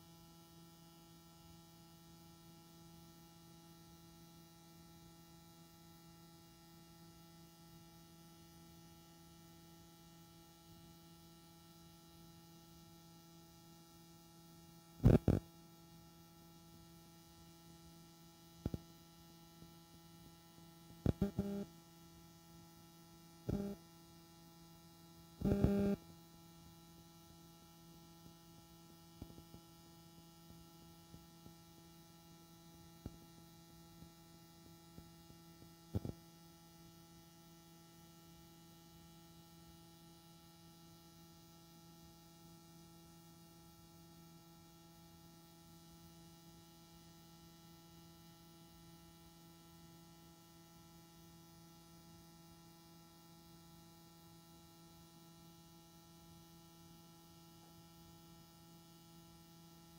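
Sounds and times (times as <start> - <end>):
steady electrical hum: 0.0 - 59.9
loud buzzing crackles: 15.0 - 15.4, 25.4 - 26.0.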